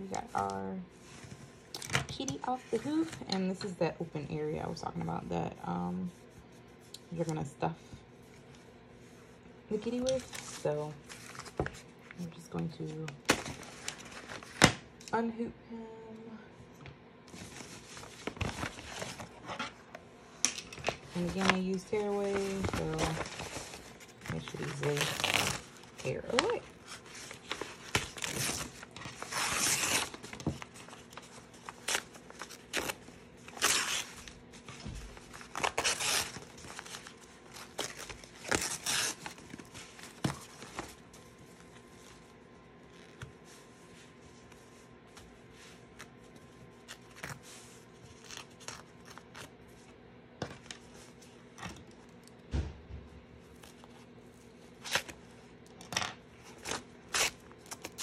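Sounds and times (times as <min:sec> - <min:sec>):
paper-like backing rustling: 0:09.7 - 0:14.8, 0:17.3 - 0:20.0, 0:20.6 - 0:52.2.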